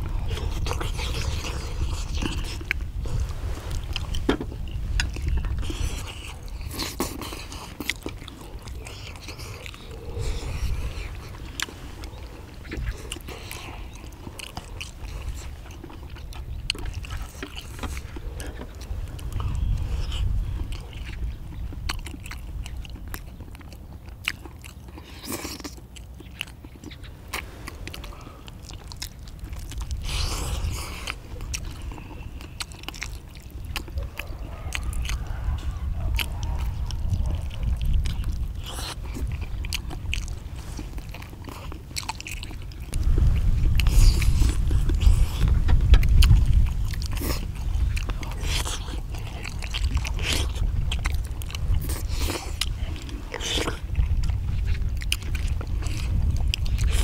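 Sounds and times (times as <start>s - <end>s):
people chewing: 0.0s - 57.0s
low rumble: 42.7s - 57.0s.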